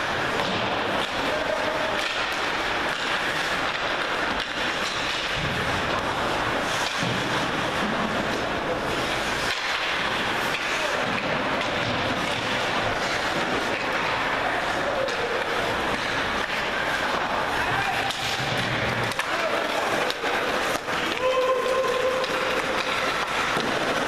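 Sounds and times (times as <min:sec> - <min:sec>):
ice hockey arena noise: 0:00.0 - 0:24.0
faint voices: 0:00.2 - 0:04.3, 0:05.7 - 0:24.0
sticks and puck knocking on ice: 0:09.1 - 0:24.0.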